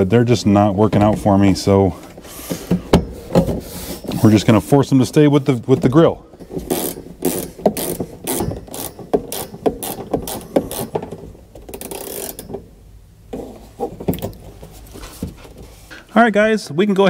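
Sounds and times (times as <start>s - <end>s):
ratcheting wrench clicking: 6.7s - 12.6s.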